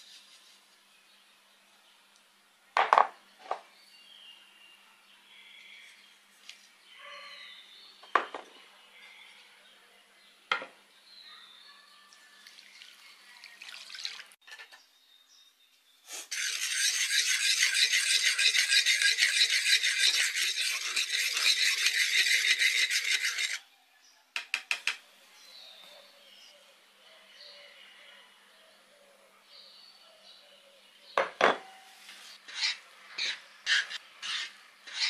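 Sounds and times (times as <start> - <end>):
fast rhythmic scraping: 16.3 - 23.6.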